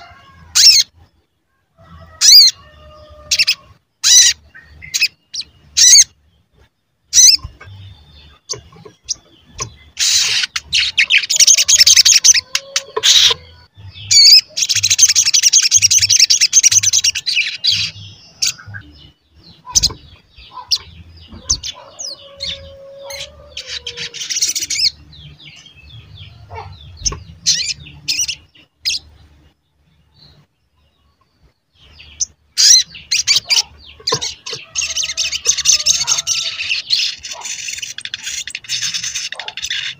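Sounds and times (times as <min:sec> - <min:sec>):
bird chirping and trilling: 0:00.0 - 0:39.9.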